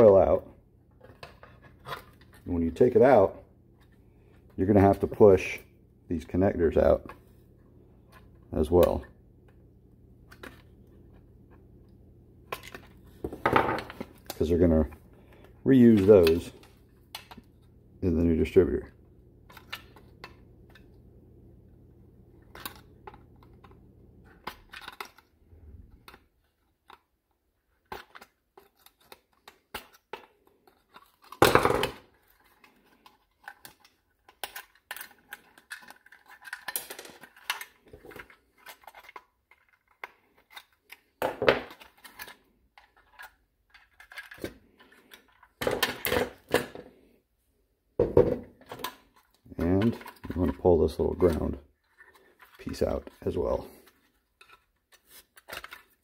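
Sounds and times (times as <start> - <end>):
plastic and metal parts clattering: 22.4 - 25.3, 27.7 - 47.0, 48.0 - 56.0.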